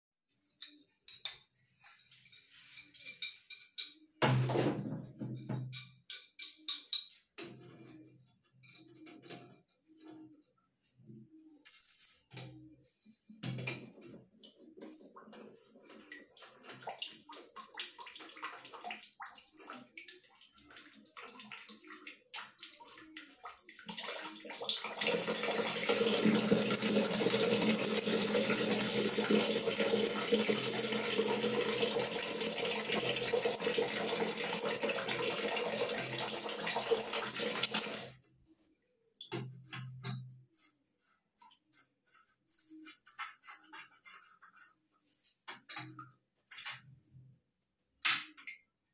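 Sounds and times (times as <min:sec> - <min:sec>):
water pouring into plastic bucket: 0:23.7 - 0:38.2.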